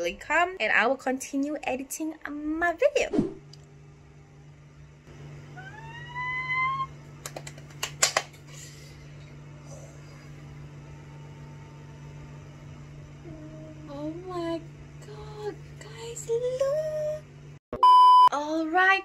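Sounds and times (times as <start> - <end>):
air conditioner humming: 0.0 - 17.6
woman squealing: 5.6 - 7.0.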